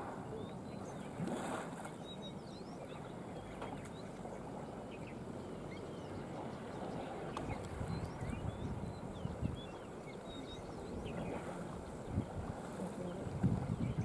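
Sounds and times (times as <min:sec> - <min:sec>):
faint bird chirps: 0:01.9 - 0:12.3.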